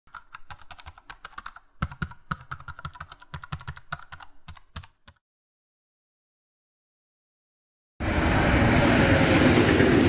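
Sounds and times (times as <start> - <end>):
typewriter keys clacking: 0.1 - 5.2.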